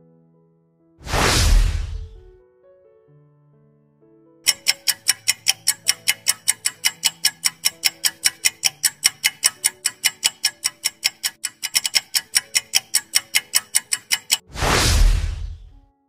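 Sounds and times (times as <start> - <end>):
clock ticking fast: 4.5 - 15.8.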